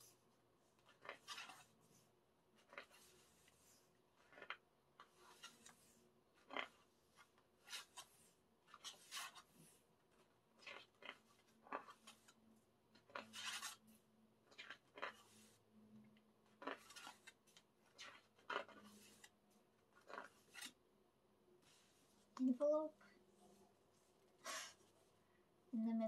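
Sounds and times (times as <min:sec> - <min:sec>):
paper pages rustling: 0:00.0 - 0:20.8.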